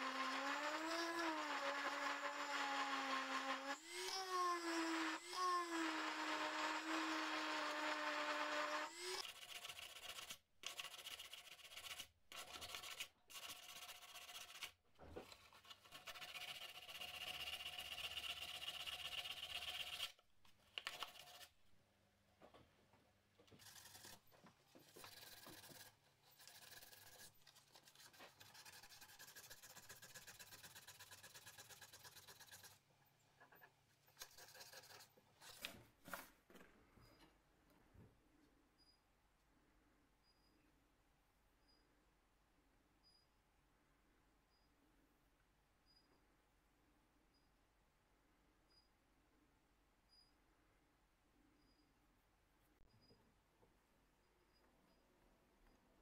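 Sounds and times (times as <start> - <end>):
sponge sanding metal: 12.6 - 14.7, 24.8 - 32.8.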